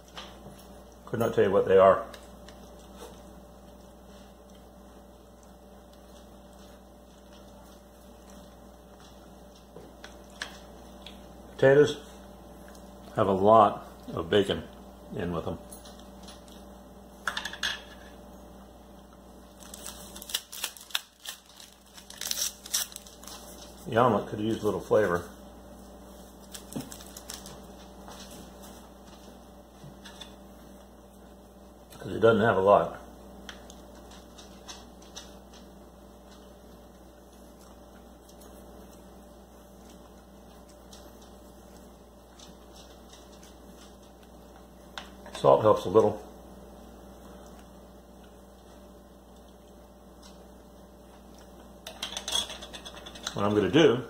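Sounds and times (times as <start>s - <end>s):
faint steady hum: 0.0s - 54.0s
cracker rustling and tapping: 5.3s - 11.3s, 26.3s - 30.4s.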